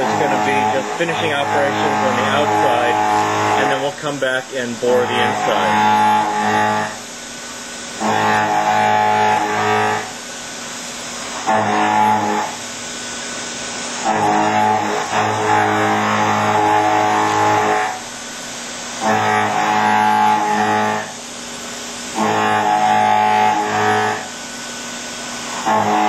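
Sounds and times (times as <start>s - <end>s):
milling cutter humming: 0.0s - 26.0s.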